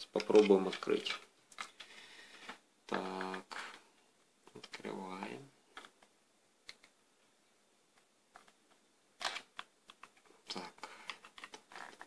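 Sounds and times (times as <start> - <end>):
plastic clicks and snaps: 5.7 - 7.0.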